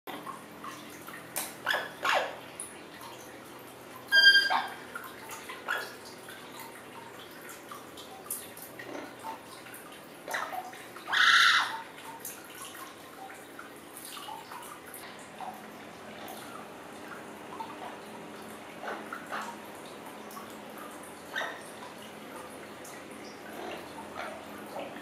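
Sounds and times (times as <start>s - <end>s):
parrot squawk: 1.7s - 2.4s, 4.1s - 4.8s, 11.1s - 11.8s.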